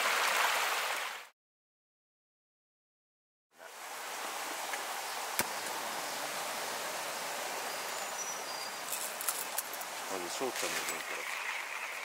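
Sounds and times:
steady outdoor hiss: 0:03.6 - 0:12.0.

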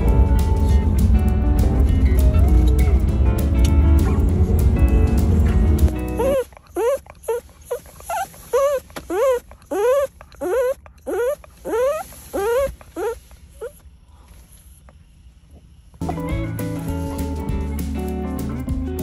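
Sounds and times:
dog whining: 0:06.0 - 0:13.8.

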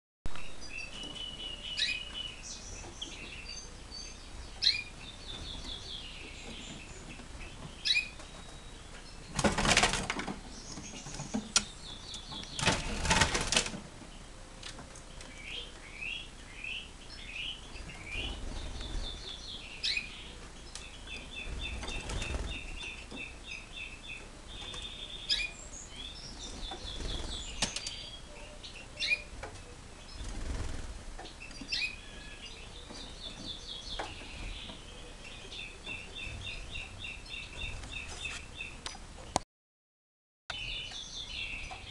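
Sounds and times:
songbird chirping: 0:00.3 - 0:39.4, 0:40.5 - 0:41.9
bird wings flapping: 0:09.4 - 0:10.4, 0:12.6 - 0:13.8, 0:21.4 - 0:22.8, 0:30.2 - 0:31.0.

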